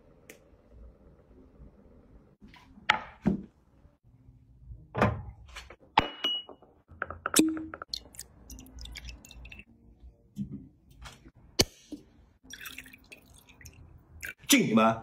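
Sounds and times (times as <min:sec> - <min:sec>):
liquor pouring into glass: 0:07.9 - 0:09.6, 0:12.5 - 0:14.3.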